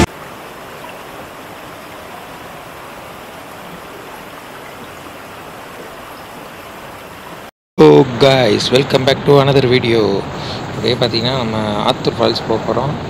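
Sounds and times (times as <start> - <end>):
stream water rushing over rocks: 0.0 - 7.5.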